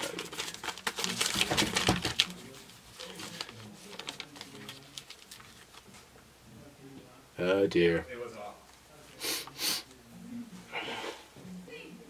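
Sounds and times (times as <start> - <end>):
paper notepad rustling: 0.0 - 6.1.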